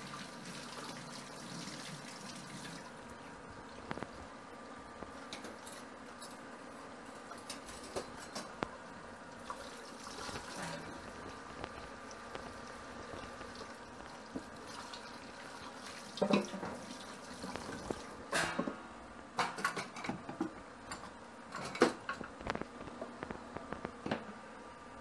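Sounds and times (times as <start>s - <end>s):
tap running into steel sink: 16.2s - 16.8s.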